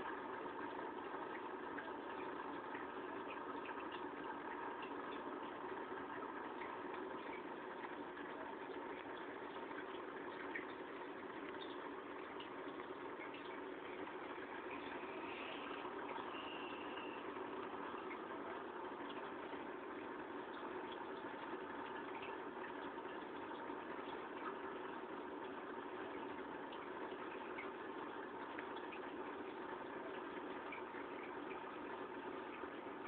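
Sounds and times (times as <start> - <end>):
aquarium bubbling: 0.0 - 33.0
faint bubble ticks: 0.0 - 33.0
air pump hum: 4.0 - 21.9.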